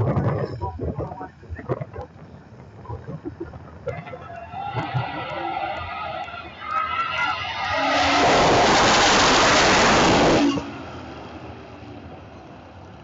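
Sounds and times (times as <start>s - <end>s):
drag racing cars at full throttle: 2.1s - 13.0s.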